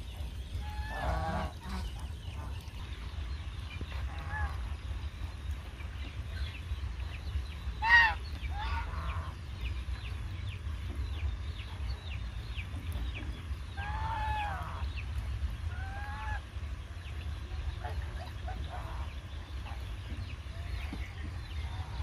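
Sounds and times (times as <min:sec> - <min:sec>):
geese honking: 0:00.6 - 0:02.6, 0:07.8 - 0:09.4.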